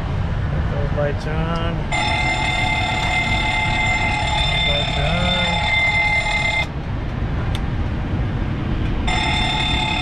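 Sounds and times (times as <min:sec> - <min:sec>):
high electronic tone: 0:01.9 - 0:06.7, 0:09.1 - 0:10.0.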